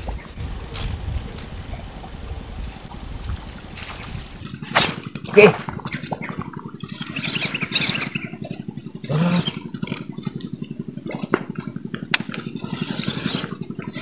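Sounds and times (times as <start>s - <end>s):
small engine running: 4.4s - 14.0s.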